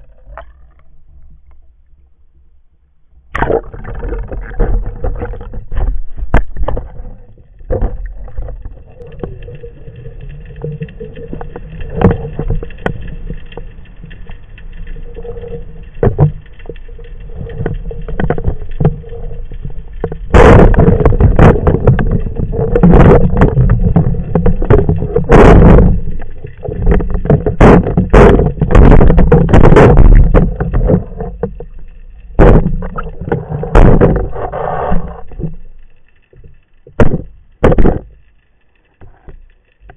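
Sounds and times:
faint steady hum: 0.0s - 39.9s
muffled underwater noise: 20.3s - 35.6s.

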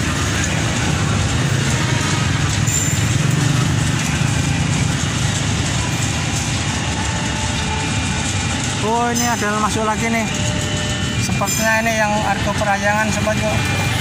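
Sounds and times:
electric train rumbling: 0.0s - 14.0s.

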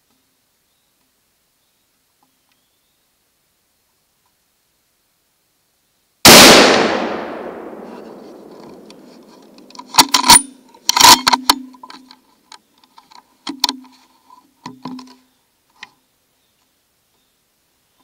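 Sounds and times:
gunshot echo: 6.3s - 9.4s
metallic gun clacks: 8.0s - 12.0s.

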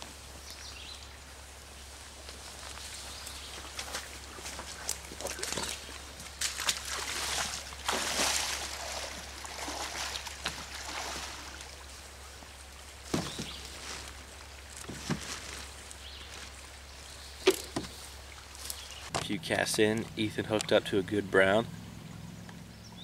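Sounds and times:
stream water running: 0.0s - 23.0s
splashing footsteps in water: 2.3s - 11.9s.

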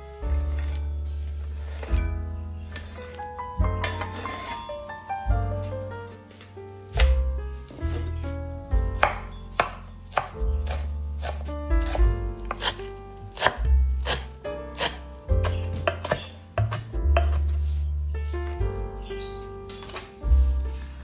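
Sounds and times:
background music: 0.0s - 21.0s
knife chopping on wooden board: 9.0s - 17.6s.

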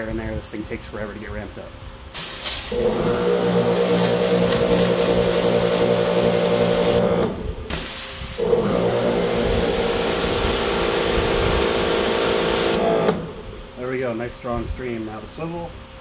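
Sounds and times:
pressure washer motor hum: 2.1s - 13.7s
water spray hissing: 2.2s - 12.8s.

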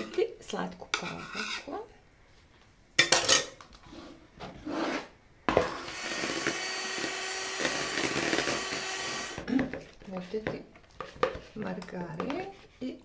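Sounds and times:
electric hand mixer running: 5.8s - 9.4s.

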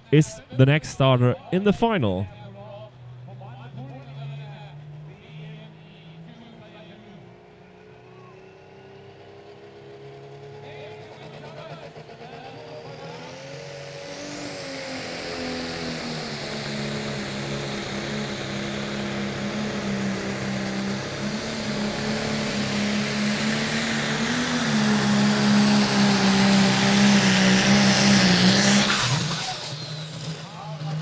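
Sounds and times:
tractor engine at full throttle: 7.4s - 31.0s.

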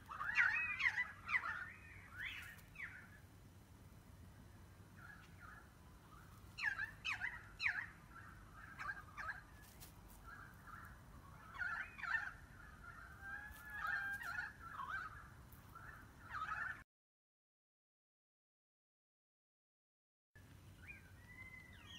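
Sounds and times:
faint background hiss: 0.0s - 11.5s.

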